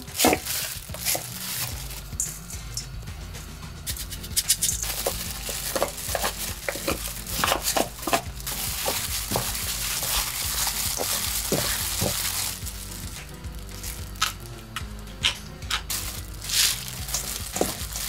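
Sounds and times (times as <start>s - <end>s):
food sizzling: 0.0s - 3.1s, 3.9s - 18.0s
utensil clicking and scraping pan: 3.9s - 12.2s.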